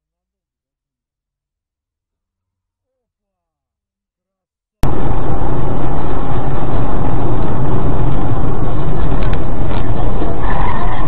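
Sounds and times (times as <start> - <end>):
car road and engine noise: 4.8 - 11.0.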